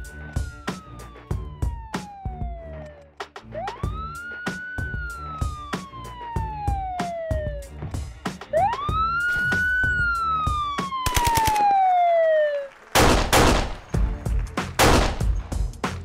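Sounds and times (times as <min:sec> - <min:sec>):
siren-like sweeping sample: 0:00.0 - 0:07.8, 0:08.5 - 0:12.7
drum beat: 0:03.6 - 0:11.0, 0:13.3 - 0:16.0.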